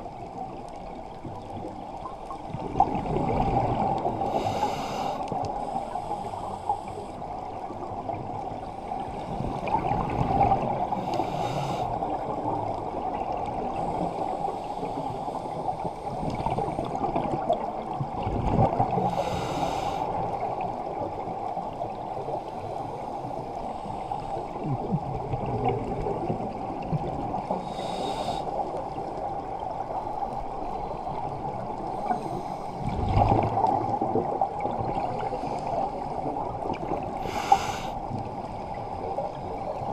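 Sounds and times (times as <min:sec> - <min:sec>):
underwater bubbles rushing: 0:00.0 - 0:27.7, 0:28.5 - 0:39.9
breathing hiss through regulator: 0:04.2 - 0:07.2, 0:10.9 - 0:12.0, 0:13.8 - 0:15.6, 0:19.0 - 0:20.2, 0:27.5 - 0:28.8, 0:31.9 - 0:33.0, 0:37.2 - 0:38.1.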